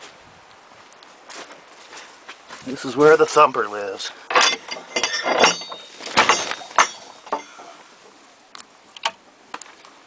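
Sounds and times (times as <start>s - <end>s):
sharp knocks: 4.3s - 7.6s
metal latch clinking and rattling: 4.3s - 7.7s.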